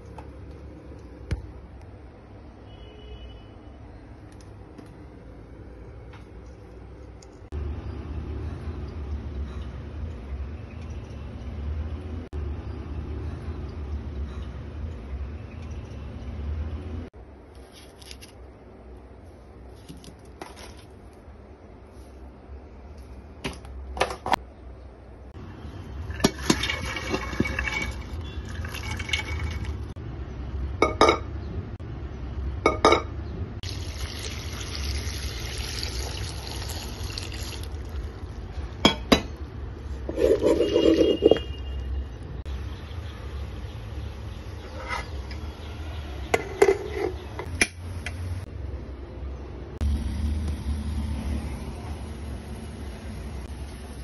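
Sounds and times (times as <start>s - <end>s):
water pouring into pot: 25.8s - 29.9s, 33.6s - 38.4s
pots and utensils clinking: 25.9s - 29.9s, 40.1s - 41.6s, 46.3s - 47.8s.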